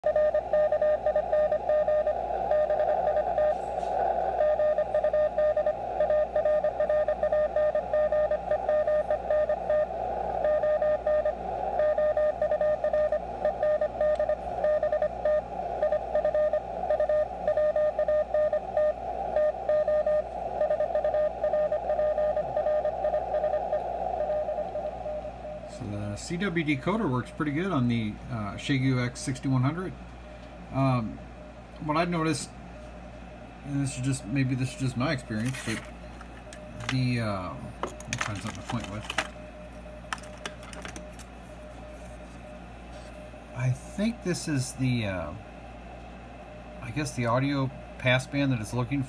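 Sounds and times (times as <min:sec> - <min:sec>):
morse code tone: 0:00.0 - 0:03.6, 0:04.4 - 0:24.6
radio static hiss: 0:00.1 - 0:49.0.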